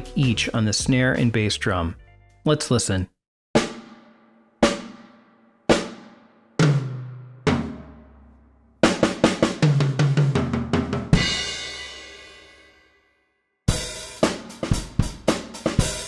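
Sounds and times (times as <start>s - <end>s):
drum strikes ringing: 3.6s - 8.1s
drum fill: 3.6s - 8.2s, 8.8s - 12.3s, 13.7s - 16.0s
cymbal crash: 11.2s - 12.8s.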